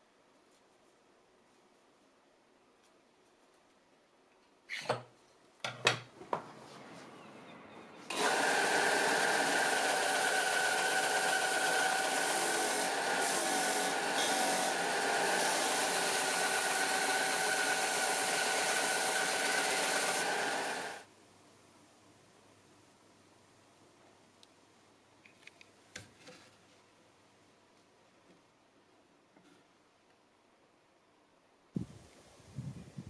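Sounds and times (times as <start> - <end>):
belt sander whining and grinding: 8.1 - 21.0.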